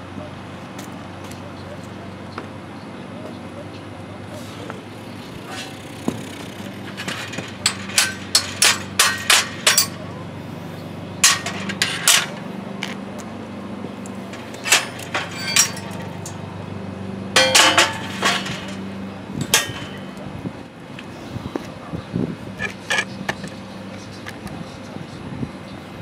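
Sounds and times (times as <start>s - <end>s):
metal plates clanking: 5.4s - 10.2s, 11.2s - 12.6s, 14.0s - 16.7s, 17.3s - 20.3s.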